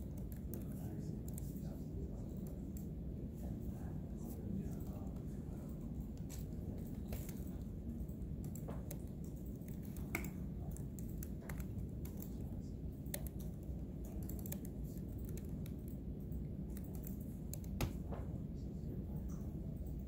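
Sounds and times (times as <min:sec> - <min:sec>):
low room hum: 0:00.0 - 0:20.0
keyboard and mouse clicks: 0:04.7 - 0:18.2.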